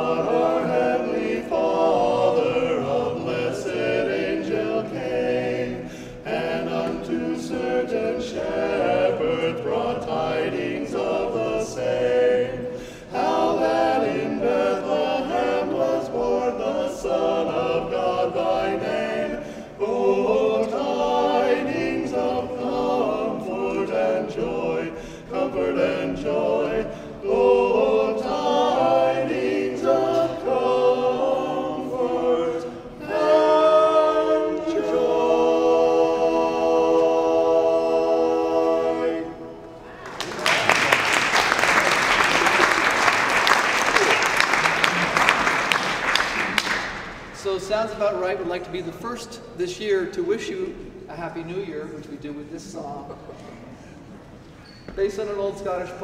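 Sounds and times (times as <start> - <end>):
male vocal quartet singing: 0.0 - 39.8.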